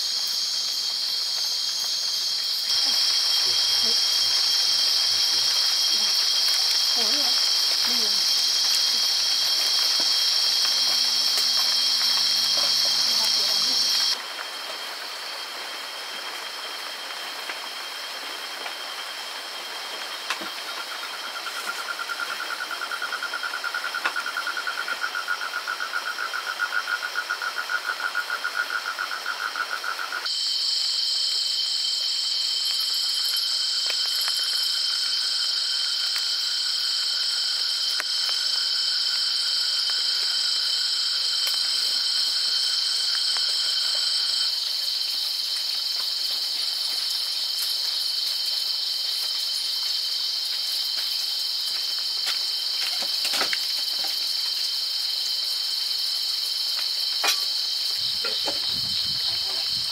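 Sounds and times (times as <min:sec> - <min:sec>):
insects droning: 0:00.0 - 0:59.9.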